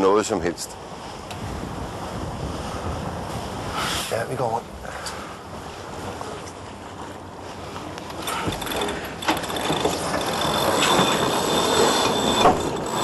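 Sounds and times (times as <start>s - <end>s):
wind: 0.0s - 13.0s
winch ratcheting and clicking: 8.1s - 13.0s
thin high whine: 8.6s - 13.0s.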